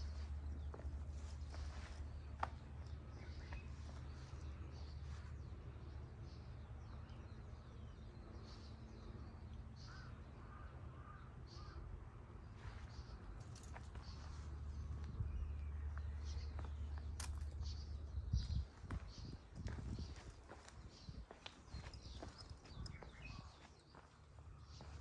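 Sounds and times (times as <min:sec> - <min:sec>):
low outdoor rumble: 0:00.0 - 0:25.0
faint bird calls: 0:09.8 - 0:11.9.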